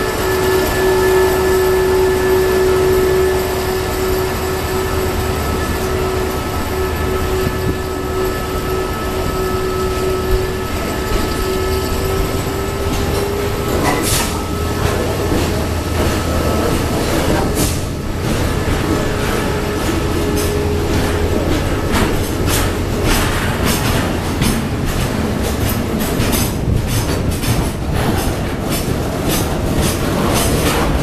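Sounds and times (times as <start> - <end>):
sustained whine: 0.0 - 22.0
train wheels rumbling on rail: 0.0 - 31.0.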